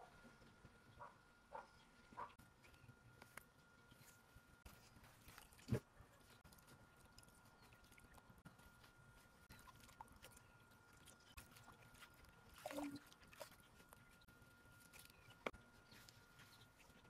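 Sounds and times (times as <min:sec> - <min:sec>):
greens washed in water: 0:09.4 - 0:14.2.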